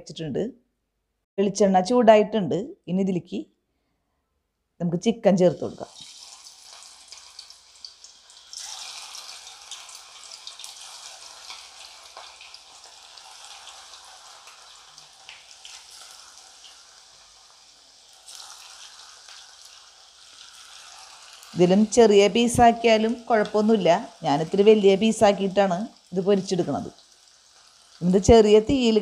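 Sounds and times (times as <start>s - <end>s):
chicken sizzling in oil: 5.8s - 29.0s.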